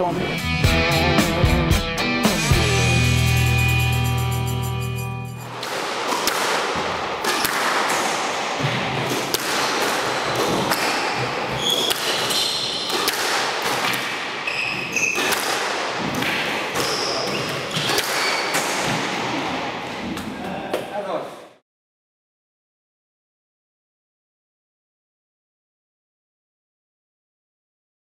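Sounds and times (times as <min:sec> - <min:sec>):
music: 0:00.0 - 0:05.5
squash ball hitting rackets and walls: 0:05.5 - 0:20.9
shoe squeaks on court floor: 0:10.4 - 0:13.2, 0:14.4 - 0:15.5, 0:16.7 - 0:18.6.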